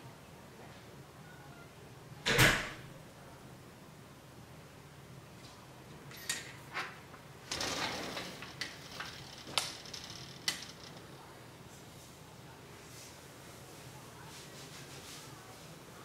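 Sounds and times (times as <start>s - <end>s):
screen door sliding open: 6.2s - 11.2s
screen frame rattling: 6.2s - 11.4s
cat claws scratching screen door: 7.4s - 11.2s.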